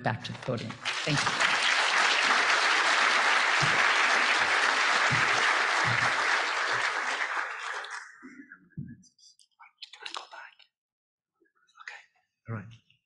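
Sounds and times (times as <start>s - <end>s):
audience applauding: 0.8s - 8.2s.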